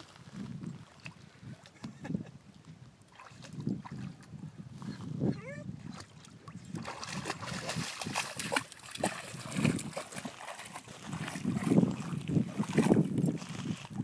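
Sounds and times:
dog splashing through water: 0:03.1 - 0:04.2, 0:05.9 - 0:13.9.

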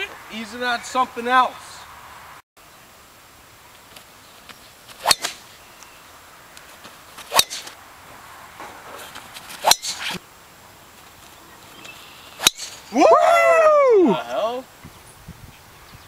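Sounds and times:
low steady background noise: 0:00.0 - 0:16.0
golf driver striking ball: 0:05.0 - 0:05.4.

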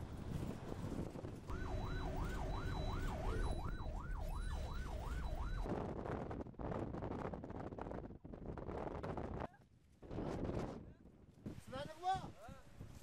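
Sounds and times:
wind and road noise: 0:00.0 - 0:13.0
police siren yelping: 0:01.5 - 0:05.7.

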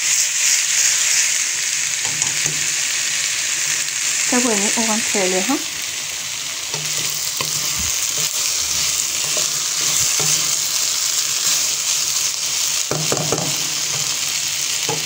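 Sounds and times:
vegetables sizzling in oil: 0:00.0 - 0:15.0
spatula scraping pan: 0:06.7 - 0:11.7.

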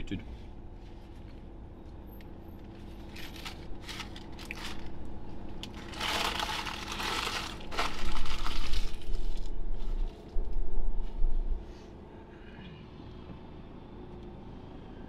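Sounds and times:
paper bag rustling and crinkling: 0:02.9 - 0:05.0, 0:05.6 - 0:10.2
low rumble: 0:03.2 - 0:11.7.

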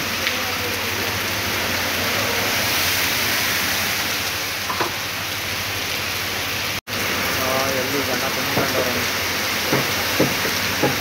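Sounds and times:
heavy rain on water and pavement: 0:00.0 - 0:11.0.

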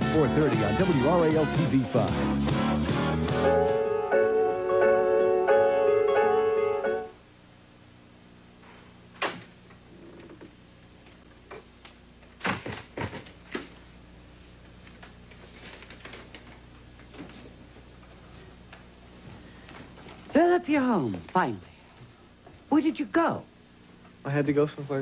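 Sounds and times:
station jingle with held chords: 0:00.0 - 0:07.2.

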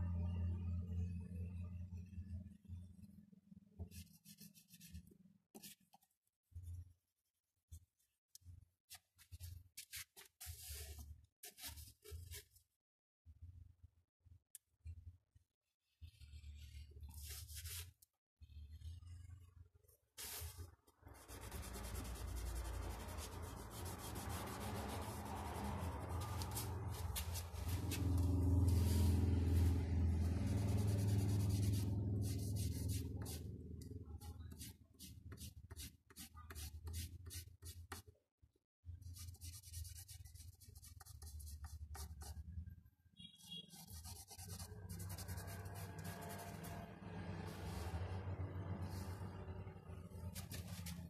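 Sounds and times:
pastel scratching on paper: 0:03.8 - 0:05.0, 0:08.9 - 0:12.4, 0:16.0 - 0:18.9, 0:20.2 - 0:33.5, 0:34.2 - 0:38.0, 0:39.1 - 0:42.4, 0:43.2 - 0:48.2, 0:48.8 - 0:51.0
low rumble of paper handled: 0:16.0 - 0:35.8, 0:43.8 - 0:51.0.

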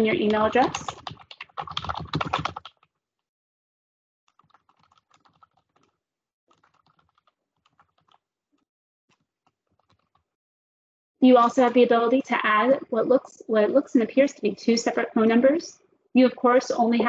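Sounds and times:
typing on computer keyboard: 0:00.0 - 0:02.9, 0:04.3 - 0:08.2, 0:09.1 - 0:10.2.

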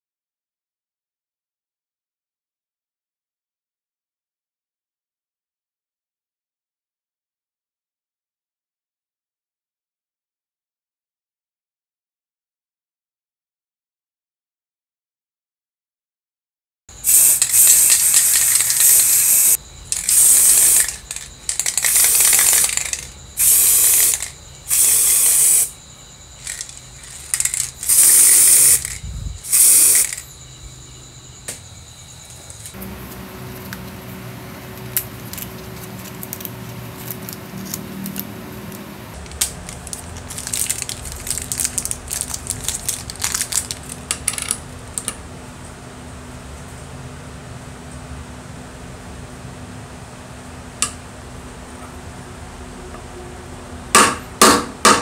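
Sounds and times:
spray paint hissing: 0:17.0 - 0:25.8, 0:26.4 - 0:30.4
small metal parts clicking: 0:17.1 - 0:25.8, 0:26.4 - 0:30.3, 0:34.9 - 0:45.2.

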